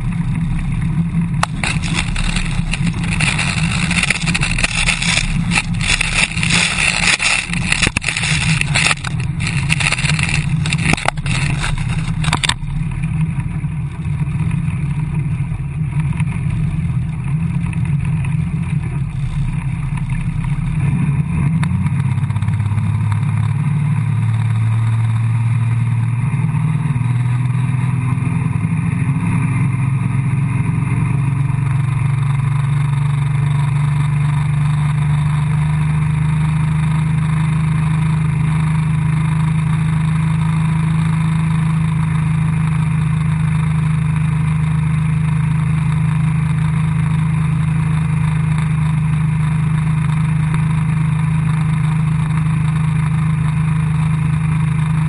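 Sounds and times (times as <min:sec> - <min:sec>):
rushing boat wake: 0:00.0 - 0:12.8
motorboat engine: 0:00.0 - 0:55.0.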